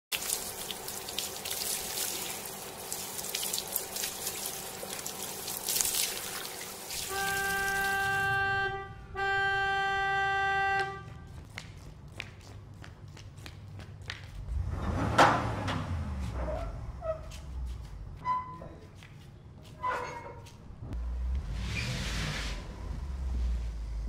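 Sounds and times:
water spraying from garden hose: 0.1 - 8.3
car horn honks: 7.0 - 11.3.

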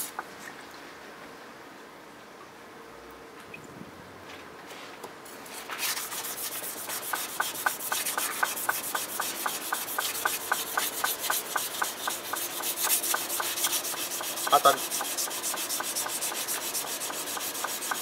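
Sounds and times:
knife scraping on whetstone: 5.6 - 18.0.

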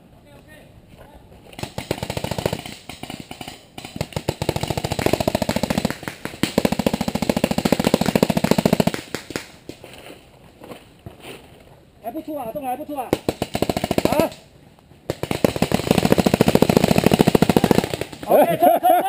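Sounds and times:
paintball markers firing: 1.5 - 9.8, 13.0 - 14.4, 15.1 - 18.4.

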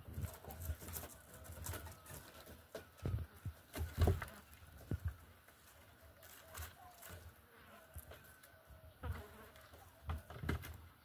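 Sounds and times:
kittens scuffling on wooden boards: 0.0 - 8.5, 9.1 - 11.0.

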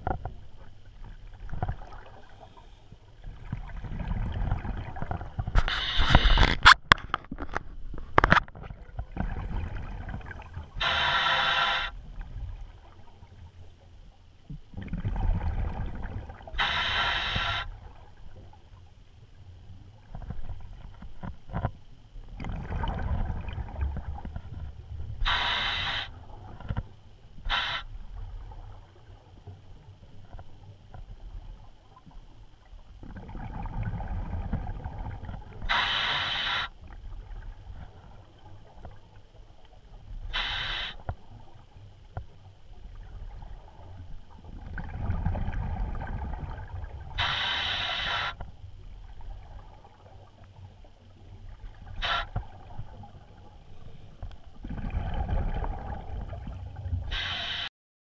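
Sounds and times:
bubbling exhaled air underwater: 3.2 - 6.4, 8.6 - 11.9, 14.8 - 18.1, 22.3 - 26.6, 33.0 - 38.8, 44.4 - 48.4, 51.1 - 57.7
regulator hissing: 10.8 - 12.0, 16.6 - 17.7, 25.2 - 26.2, 35.7 - 36.7, 40.4 - 41.0.

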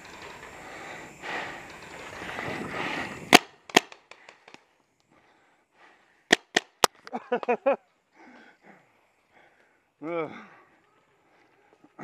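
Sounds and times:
paintball marker shots: 3.3 - 4.6, 6.3 - 7.0.

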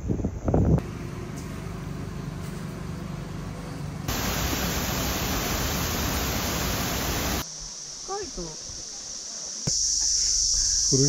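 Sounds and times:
faint hum: 3.2 - 9.4
waterfall pouring over rock: 4.1 - 7.4.

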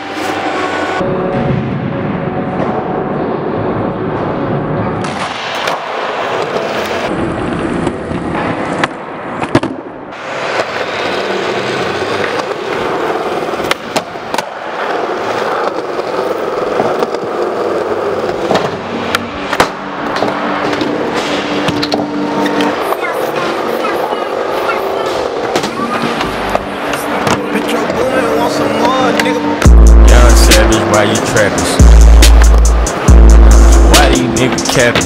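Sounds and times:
skateboard wheels rolling on concrete: 2.5 - 35.0
skateboard popping and landing: 7.7 - 23.1.

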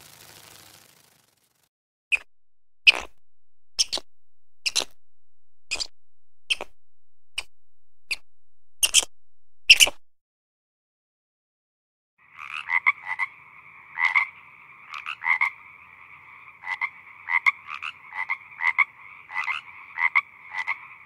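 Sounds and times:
frog croaking: 2.1 - 3.2, 3.8 - 5.0, 5.7 - 7.5, 8.8 - 9.1, 12.2 - 21.0
steady background drone: 2.2 - 10.1.

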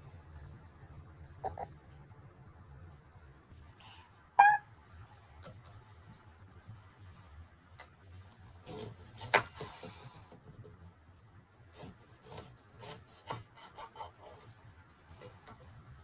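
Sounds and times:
knife cutting an orange: 8.1 - 10.2, 11.6 - 14.5.

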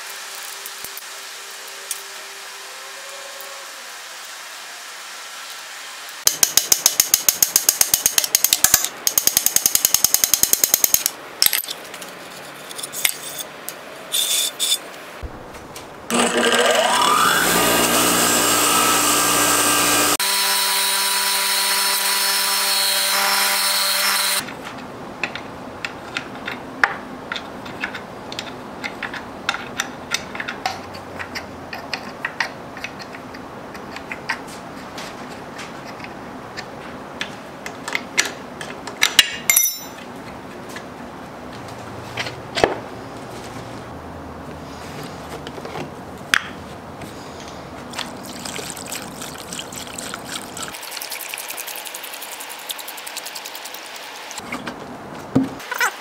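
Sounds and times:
tapping on metal parts: 6.3 - 12.0, 35.8 - 40.1
bench grinder motor whine: 16.1 - 24.4.

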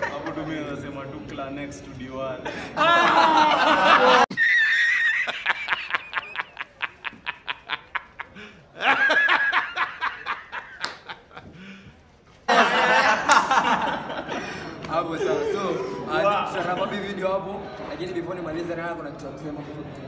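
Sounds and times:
man laughing hysterically: 2.8 - 11.5.

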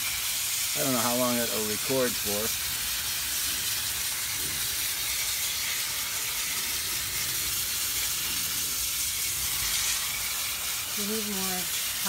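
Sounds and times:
hose spraying water: 0.0 - 12.0.

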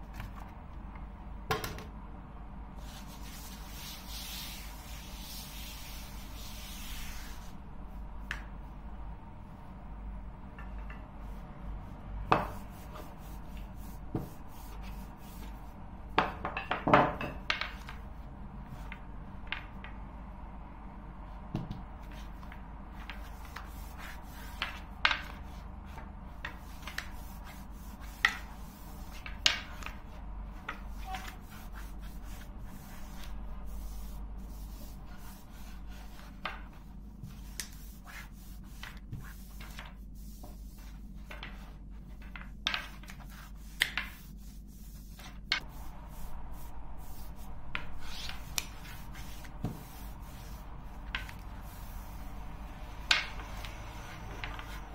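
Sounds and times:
rolling pin rubbing dough: 2.8 - 8.7, 10.6 - 16.6, 22.0 - 54.9.

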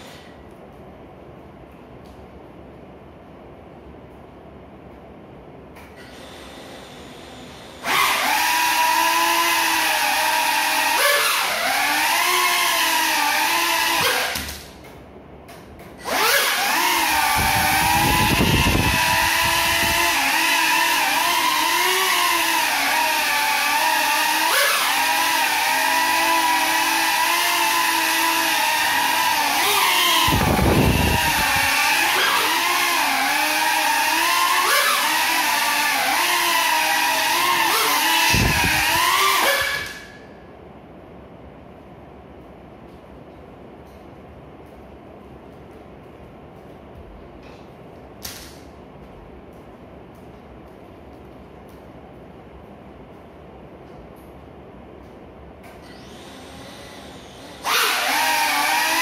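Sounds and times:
quadcopter motors whining: 6.0 - 14.6, 16.0 - 40.2, 55.7 - 59.0.

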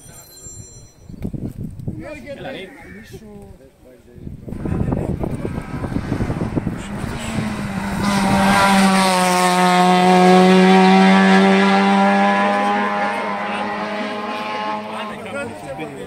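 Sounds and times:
race car engine at high revs: 4.5 - 16.0.

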